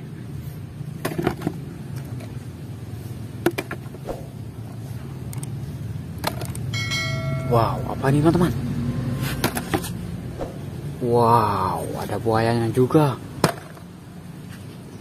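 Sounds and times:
plastic toys knocking on concrete: 0:03.4 - 0:04.0, 0:13.4 - 0:13.9
low hum: 0:03.9 - 0:11.1.

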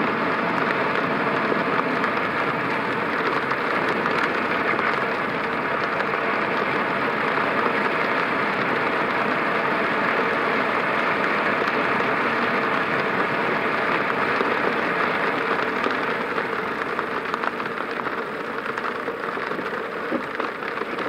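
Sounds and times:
car engine running: 0:00.0 - 0:21.0
tyres hissing on wet road: 0:00.0 - 0:21.0.

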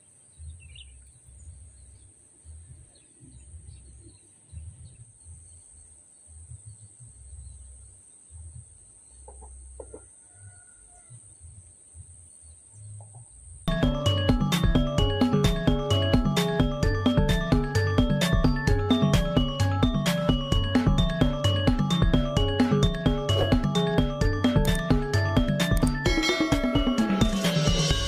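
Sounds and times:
chickens clucking: 0:09.2 - 0:10.4.

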